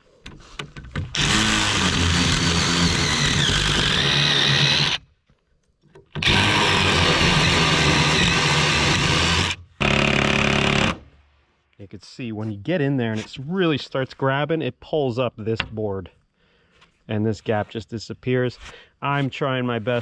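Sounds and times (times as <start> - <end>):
drill boring into wood: 1.1 - 5.1, 6.2 - 11.0.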